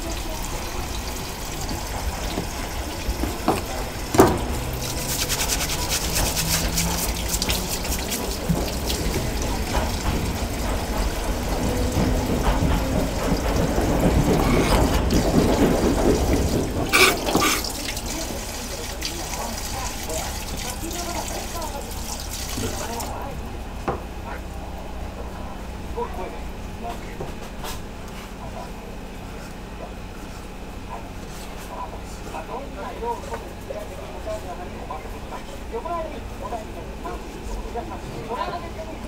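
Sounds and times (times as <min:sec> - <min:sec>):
tap water running and splashing: 0:00.0 - 0:23.3.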